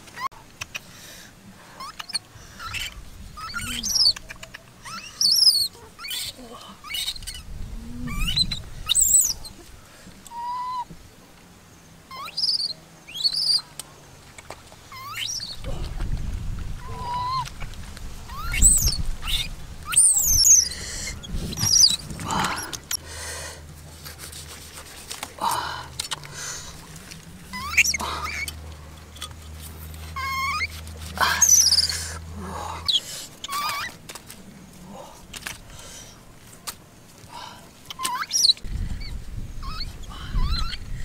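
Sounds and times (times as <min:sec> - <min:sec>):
birds chirping: 0:01.7 - 0:16.1, 0:16.8 - 0:23.4, 0:25.4 - 0:36.2, 0:37.3 - 0:41.0
low rumbling: 0:06.4 - 0:09.8.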